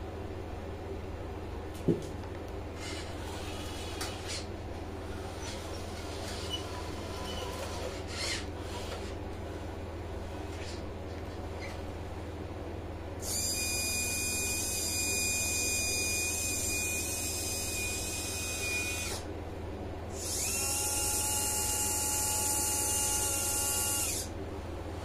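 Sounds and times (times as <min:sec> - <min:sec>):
servo motor whining: 0:06.3 - 0:09.2, 0:20.2 - 0:24.3.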